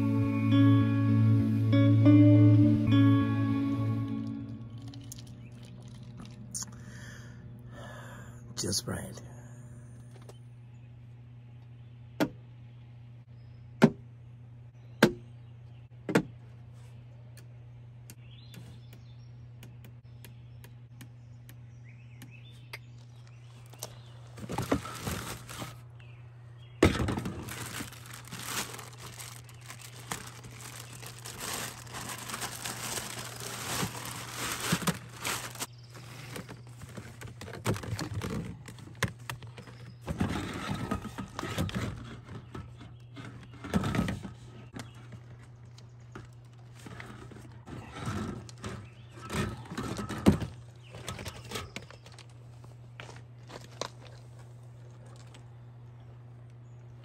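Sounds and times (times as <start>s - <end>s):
low steady hum: 0.0s - 57.0s
crinkling ducting pulled from tote: 4.1s - 6.8s, 23.2s - 25.9s, 26.8s - 42.4s.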